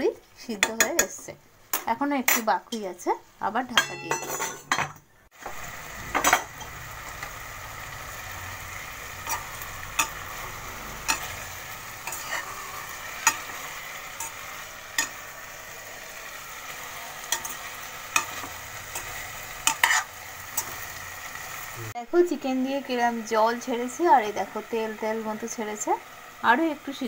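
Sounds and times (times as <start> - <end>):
chicken sizzling in a pan: 5.3 - 27.0
metal spoon scraping a pan: 6.1 - 6.8, 8.7 - 21.6.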